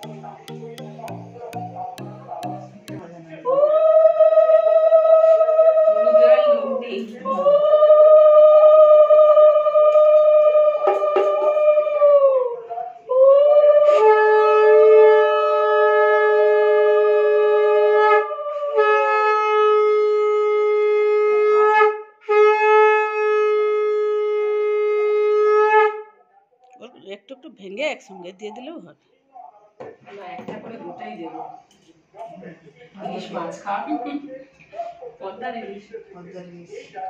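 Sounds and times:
conch shells blown: 0.0s - 3.0s.

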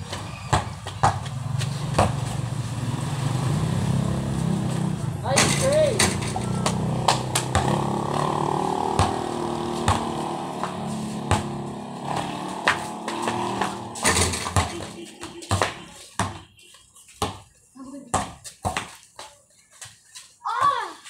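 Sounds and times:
basketball bouncing on concrete: 0.0s - 2.5s, 5.4s - 19.3s
vehicle engine hum: 0.0s - 16.6s.

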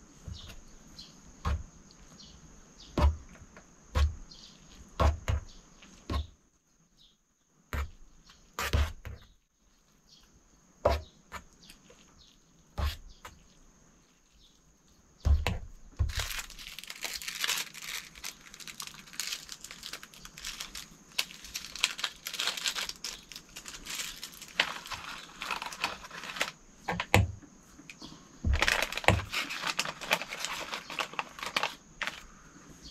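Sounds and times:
plastic sachet crinkling and tearing: 16.1s - 26.6s, 28.5s - 32.3s.

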